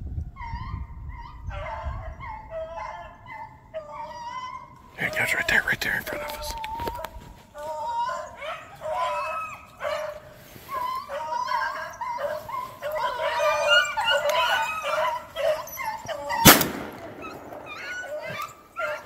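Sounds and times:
hounds baying: 0:00.4 - 0:19.0
loud shotgun shot: 0:16.4 - 0:18.0.

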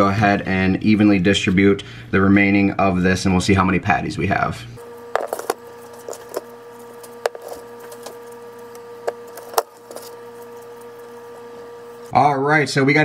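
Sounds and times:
steady hum: 0:04.6 - 0:12.9
spatula scraping metal bowl: 0:05.2 - 0:11.6.

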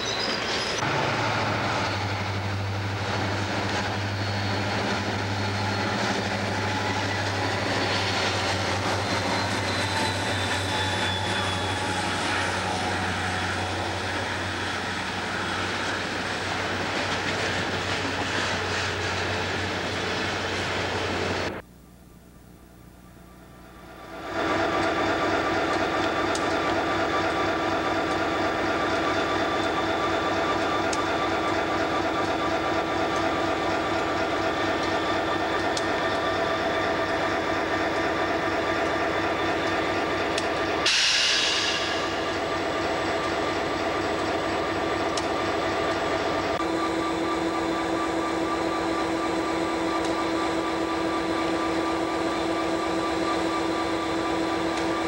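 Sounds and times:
diesel locomotives rolling past: 0:00.0 - 0:21.6, 0:23.2 - 0:55.0
loud hiss of air: 0:40.8 - 0:42.3.

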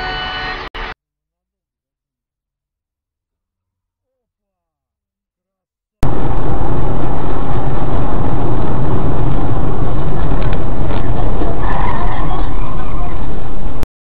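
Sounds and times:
car road and engine noise: 0:06.0 - 0:13.9.

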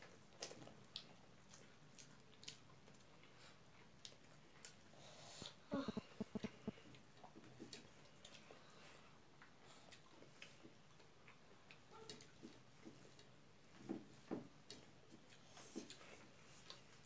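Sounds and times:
chewing: 0:00.0 - 0:17.0
fingers mixing rice on plates: 0:05.5 - 0:08.5.

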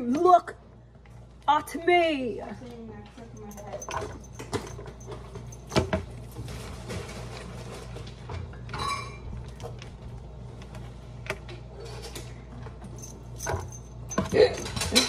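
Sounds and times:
steady low hum: 0:09.2 - 0:15.0.

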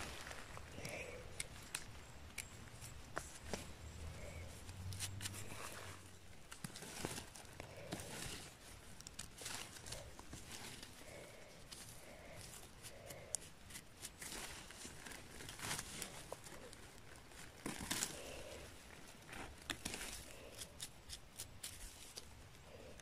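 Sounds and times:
knife cutting mushroom stems: 0:04.7 - 0:05.8, 0:19.6 - 0:22.3.

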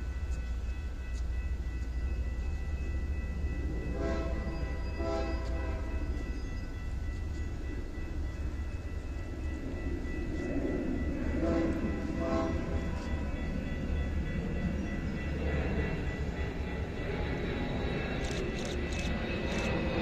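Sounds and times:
low train rumble: 0:00.0 - 0:20.0
locomotive horn blasts: 0:03.9 - 0:06.0, 0:11.4 - 0:12.8.

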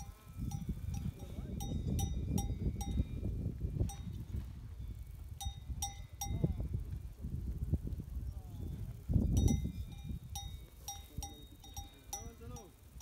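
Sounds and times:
cowbell clanging: 0:00.0 - 0:03.3, 0:09.4 - 0:12.8.

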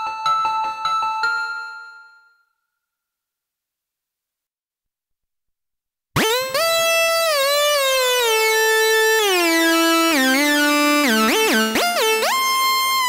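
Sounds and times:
synthesizer lead with gliding notes: 0:06.2 - 0:13.0.

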